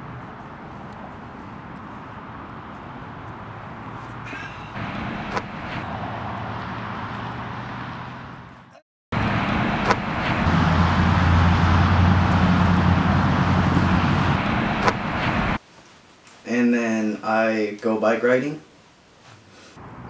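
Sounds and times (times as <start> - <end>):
traffic rumble: 0.0 - 15.6
low hum: 4.5 - 8.5, 9.1 - 15.6
sharp knocks: 14.8 - 15.1.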